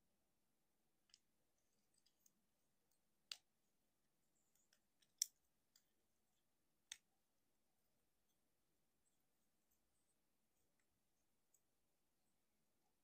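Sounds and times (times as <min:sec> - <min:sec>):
plastic toy parts clicking: 0:04.4 - 0:05.9.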